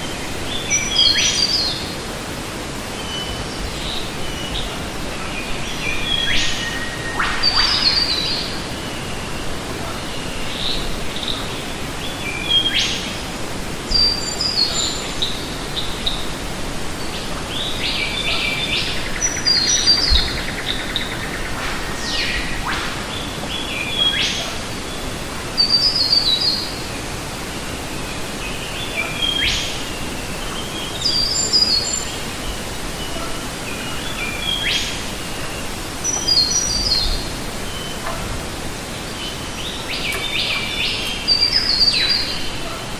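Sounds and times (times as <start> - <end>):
small waterfall splashing: 0.0 - 42.9.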